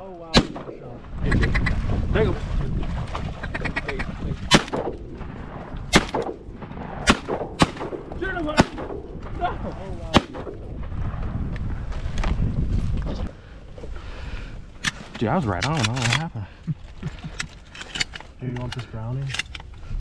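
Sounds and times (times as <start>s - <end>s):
shotgun shots: 0.3s - 1.0s, 4.5s - 9.0s, 10.0s - 11.2s.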